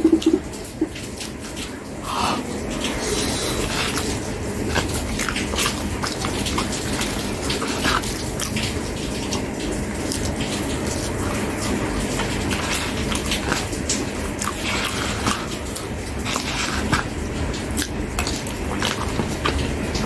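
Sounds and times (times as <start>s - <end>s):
mouth clicks and smacks: 0.0s - 1.6s
wet slurping off a spoon: 2.0s - 20.0s.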